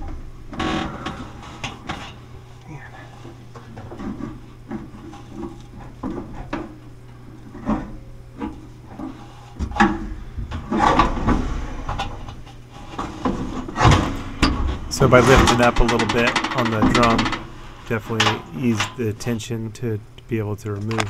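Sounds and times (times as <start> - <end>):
knocks and scrapes of dryer drum: 3.2 - 19.0.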